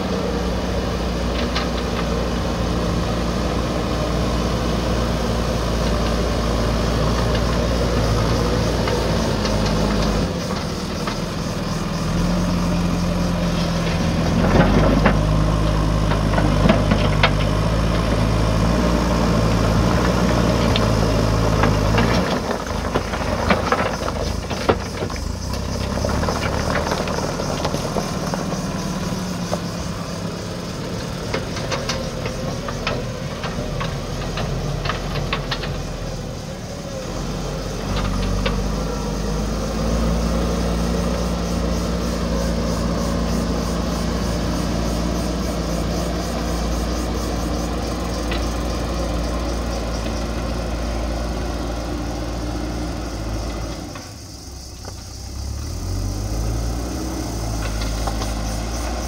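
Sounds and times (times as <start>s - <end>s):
diesel engine running hard: 0.0s - 59.0s
stones clattering against steel bucket: 21.7s - 28.4s.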